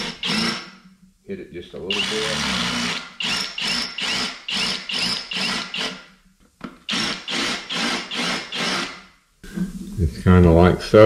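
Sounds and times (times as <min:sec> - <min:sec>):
cordless drill cutting metal: 0:00.0 - 0:00.8, 0:01.9 - 0:06.1, 0:06.9 - 0:09.1.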